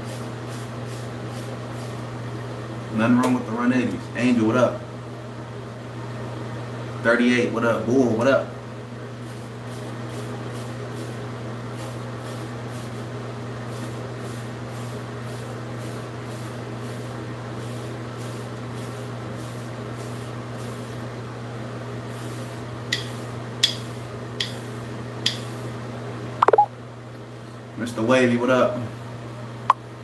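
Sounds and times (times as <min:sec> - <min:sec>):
short high pings: 0:26.4 - 0:26.7.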